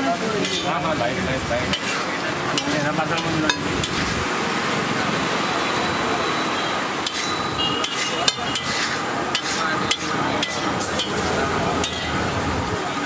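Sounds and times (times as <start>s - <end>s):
metal spatula clinking on griddle: 0.4s - 0.7s, 1.7s - 2.0s, 7.0s - 12.2s.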